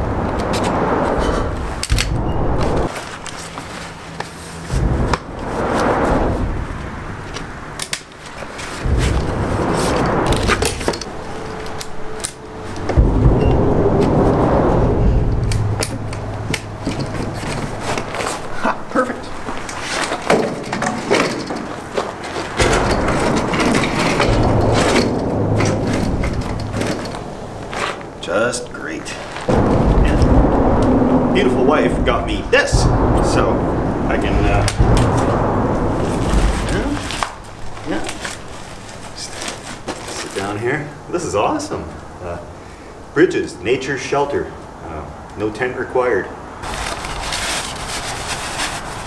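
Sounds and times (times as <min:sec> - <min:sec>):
low rumble: 0:00.0 - 0:07.8, 0:08.7 - 0:20.6, 0:22.5 - 0:39.1
metal poles clicking and knocking: 0:19.5 - 0:28.1
fabric rustling: 0:28.9 - 0:29.5.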